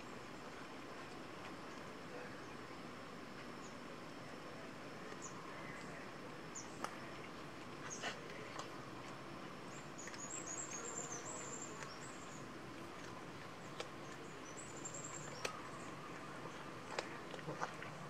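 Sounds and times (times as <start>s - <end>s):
cats chewing: 6.8s - 18.0s.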